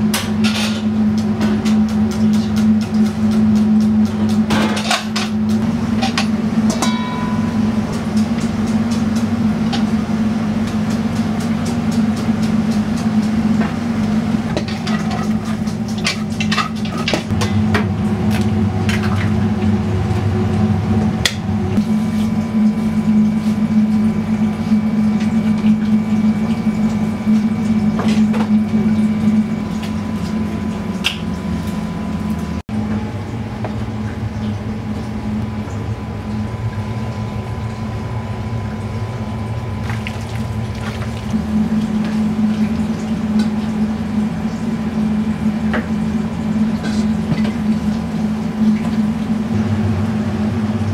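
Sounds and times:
low machine hum: 0:00.0 - 0:50.9
utensils clinking on metal bowls: 0:06.0 - 0:07.8.

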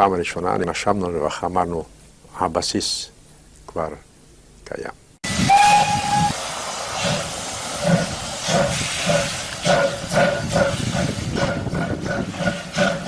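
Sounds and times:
steam hissing: 0:05.3 - 0:13.0
steam locomotive chuffing: 0:05.3 - 0:13.0.

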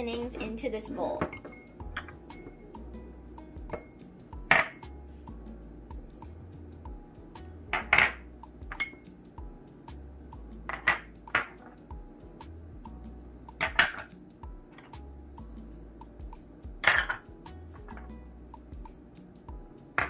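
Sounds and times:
faint background music: 0:00.0 - 0:20.0
ceramic dishes clinking: 0:07.7 - 0:09.0, 0:10.7 - 0:11.6, 0:13.6 - 0:14.1, 0:16.8 - 0:17.2.

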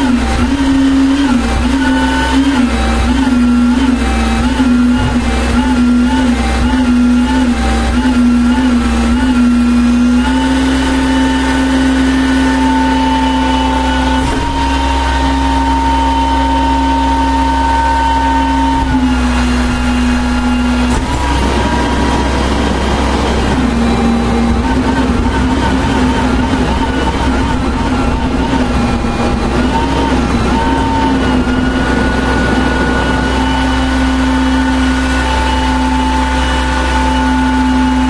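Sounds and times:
garbage truck engine rumble: 0:00.0 - 0:38.0
steady mechanical whine: 0:00.0 - 0:38.0.

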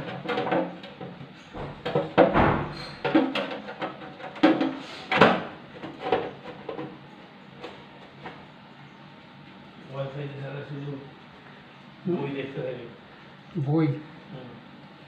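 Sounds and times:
motor knocking in metal housing: 0:00.0 - 0:06.3.

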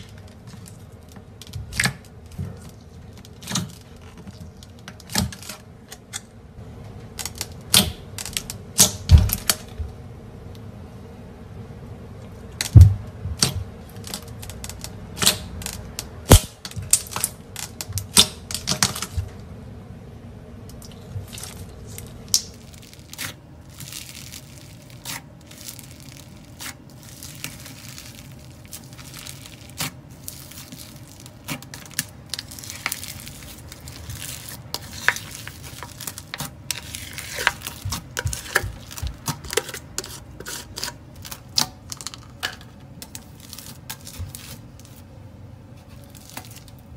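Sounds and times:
crackling crunch of foam slime: 0:00.0 - 0:06.0, 0:20.7 - 0:46.9.

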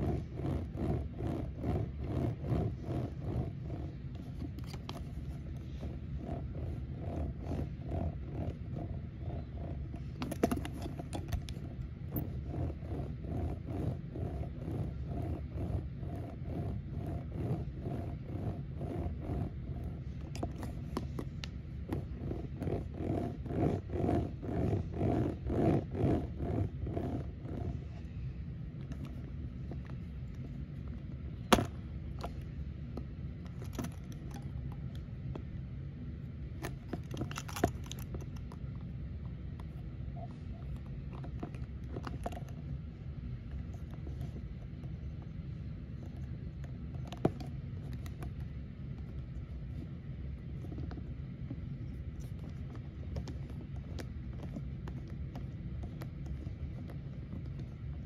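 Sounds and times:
handling scrapes: 0:00.0 - 0:32.6
steady low hum: 0:00.0 - 0:58.0.

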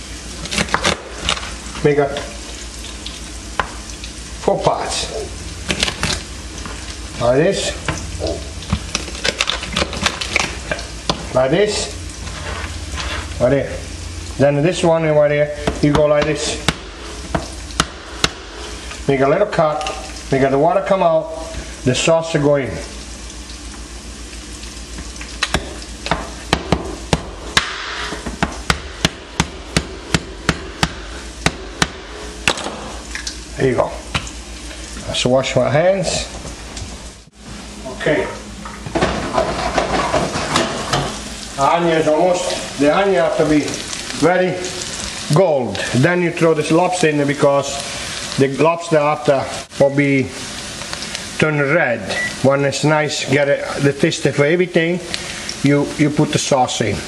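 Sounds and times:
onion sizzling in pan: 0:00.0 - 0:57.0
person speaking: 0:04.4 - 0:05.4, 0:07.2 - 0:08.6, 0:11.2 - 0:12.1, 0:12.7 - 0:16.8, 0:19.0 - 0:23.0, 0:33.5 - 0:34.1, 0:37.8 - 0:38.5, 0:41.6 - 0:50.4, 0:51.4 - 0:57.0
knife chopping shell on board: 0:25.5 - 0:32.9.

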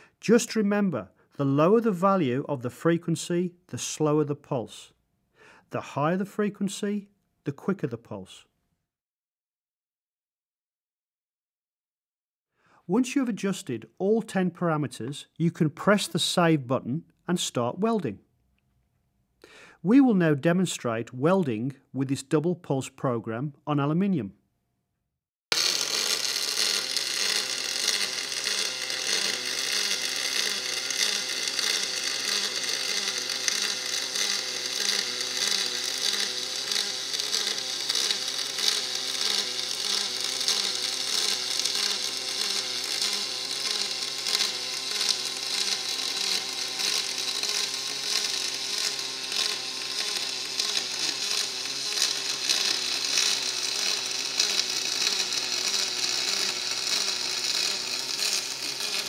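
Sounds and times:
welding arc hissing buzz: 0:25.5 - 0:59.0.

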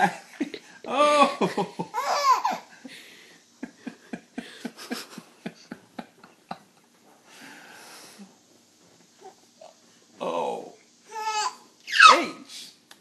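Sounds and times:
baby laughing: 0:01.9 - 0:02.7.

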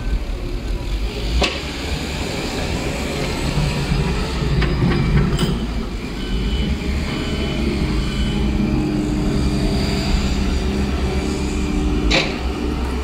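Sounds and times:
diesel engine working: 0:00.0 - 0:13.0
plow blade scraping snow: 0:06.2 - 0:13.0.

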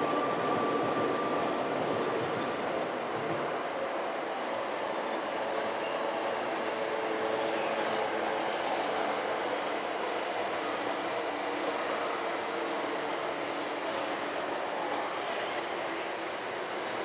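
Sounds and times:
train wheels on rails: 0:00.0 - 0:17.0.

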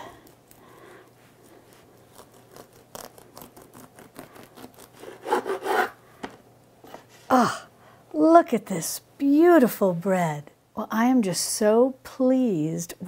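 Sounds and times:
bread knife sawing through crust: 0:01.7 - 0:06.0.

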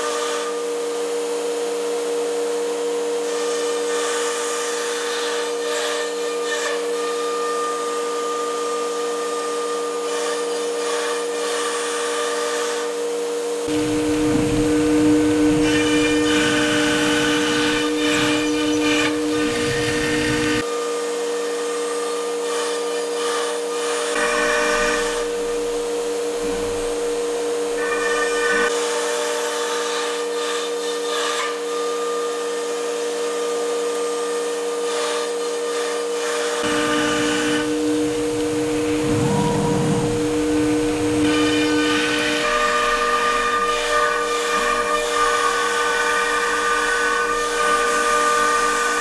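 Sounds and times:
router spindle whining: 0:13.6 - 0:20.6, 0:36.4 - 0:49.0
bit cutting sheet: 0:36.6 - 0:44.3.

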